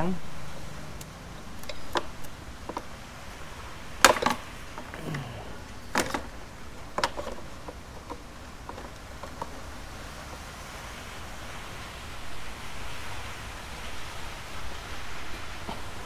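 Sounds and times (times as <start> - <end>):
metallic clicks and knocks: 1.0 - 2.9, 5.8 - 9.7.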